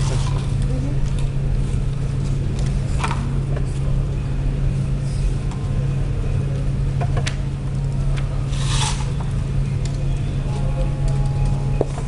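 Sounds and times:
steady low hum: 0:00.0 - 0:12.0
short scraping rub: 0:08.5 - 0:09.2.

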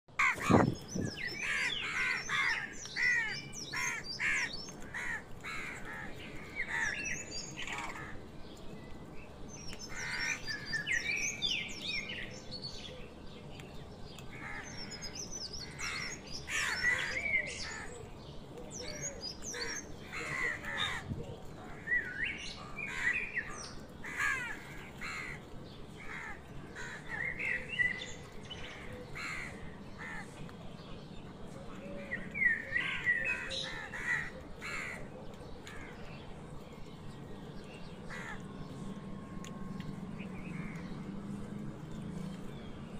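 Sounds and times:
crows cawing: 0:00.2 - 0:00.7, 0:01.4 - 0:08.2, 0:19.5 - 0:21.1, 0:22.8 - 0:23.2, 0:24.0 - 0:25.4, 0:26.0 - 0:27.4, 0:33.3 - 0:35.1, 0:38.1 - 0:38.5
small birds chirping: 0:00.2 - 0:42.9.

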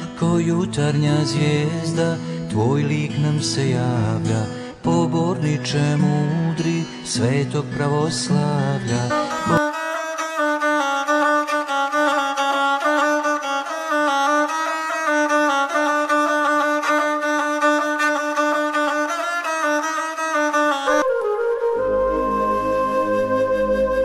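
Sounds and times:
instrumental melody: 0:00.0 - 0:24.0
held low note: 0:21.0 - 0:24.0.

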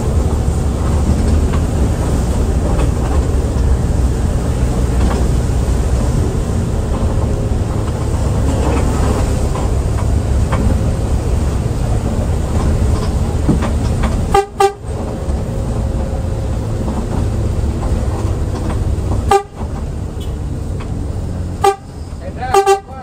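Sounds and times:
bus diesel engine rumble: 0:00.0 - 0:23.0
road noise: 0:00.0 - 0:23.0
horn toots: 0:14.2 - 0:15.0, 0:19.2 - 0:20.4, 0:21.6 - 0:23.0.

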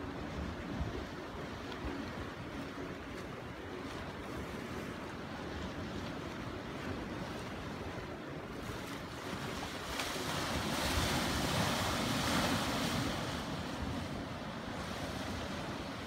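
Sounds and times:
surf washing against rocks: 0:06.8 - 0:16.0.

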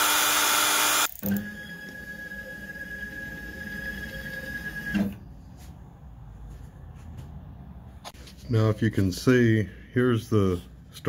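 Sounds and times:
router spindle noise: 0:00.0 - 0:04.9
stepper motors whining: 0:00.0 - 0:05.2.

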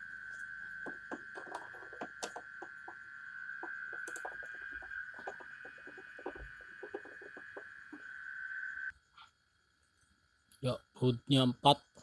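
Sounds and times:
steady high-pitched tone: 0:00.0 - 0:09.0.

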